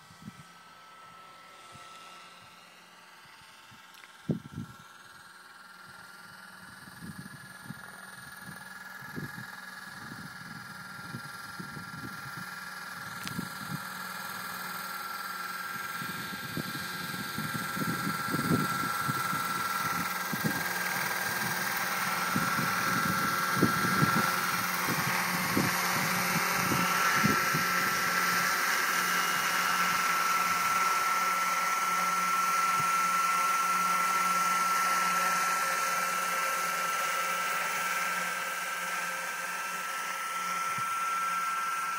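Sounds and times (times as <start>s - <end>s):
model helicopter whine: 0.0s - 41.9s.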